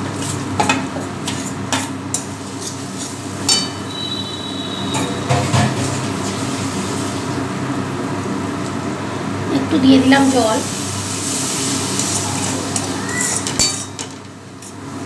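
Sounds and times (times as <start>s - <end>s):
food sizzling: 0.0s - 8.8s, 9.6s - 15.0s
spatula scraping metal pan: 1.2s - 5.3s.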